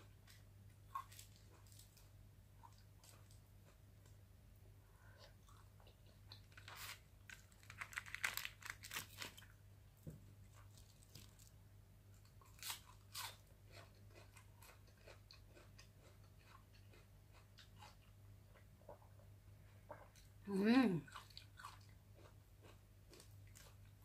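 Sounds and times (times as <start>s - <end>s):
faint low hum: 0.0s - 24.0s
chewing and crunching: 0.3s - 3.8s, 10.5s - 20.3s, 21.0s - 24.0s.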